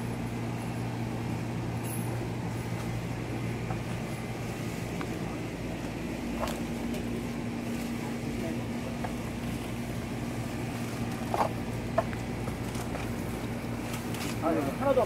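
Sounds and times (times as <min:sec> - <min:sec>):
low machine hum: 0:00.0 - 0:15.0.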